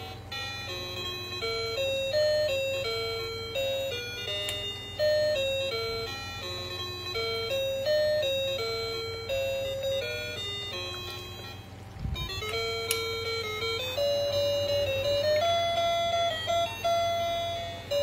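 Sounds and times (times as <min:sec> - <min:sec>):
low steady hum: 0:00.0 - 0:18.0
toy electronic jingle: 0:00.0 - 0:18.0.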